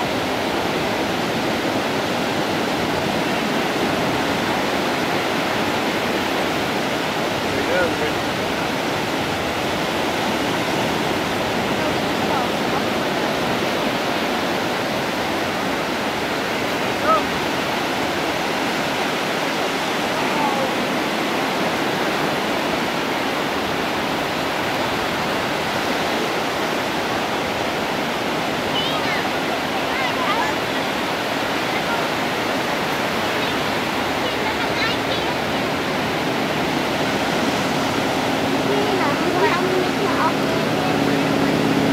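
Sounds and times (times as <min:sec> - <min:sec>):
ocean surf breaking: 0:00.0 - 0:41.9.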